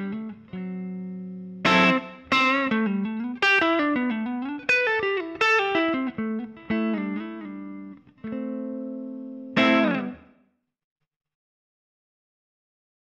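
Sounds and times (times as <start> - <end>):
overdriven electric guitar notes: 0.0 - 10.4.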